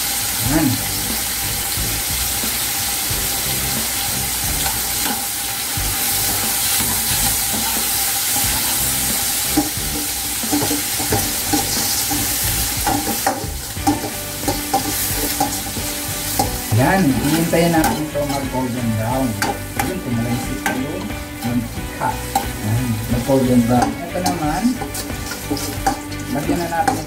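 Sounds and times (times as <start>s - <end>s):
meat sizzling in a wok: 0.0s - 27.0s
metal spoon scraping a pan: 3.9s - 5.3s, 6.1s - 27.0s.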